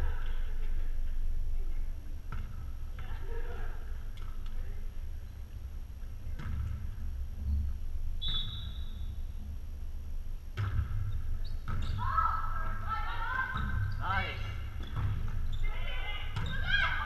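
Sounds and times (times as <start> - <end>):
low steady hall hum: 0.0 - 17.0
volleyball struck with sharp smacks: 10.5 - 12.0
players shouting calls: 12.0 - 14.6, 15.6 - 17.0.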